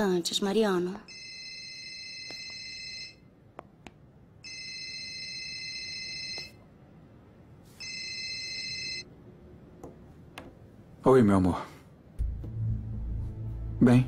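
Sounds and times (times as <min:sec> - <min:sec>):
mobile phone electronic ringtone: 0:04.4 - 0:06.6, 0:07.8 - 0:09.1.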